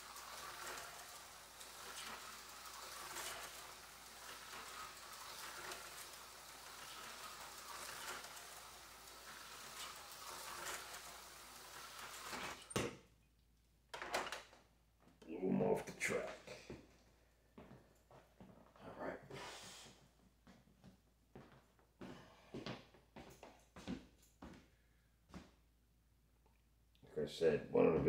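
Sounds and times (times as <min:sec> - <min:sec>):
slot car motor whirring: 0:00.0 - 0:12.8.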